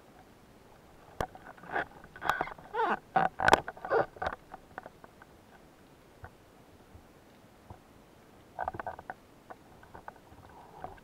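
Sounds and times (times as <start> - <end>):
underwater knocks and clicks: 3.2 - 5.3, 8.6 - 11.0.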